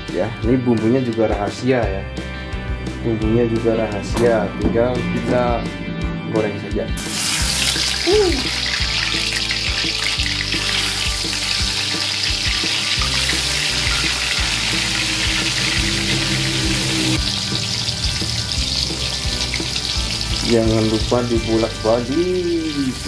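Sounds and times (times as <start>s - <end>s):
food deep-frying in oil: 7.0s - 21.3s.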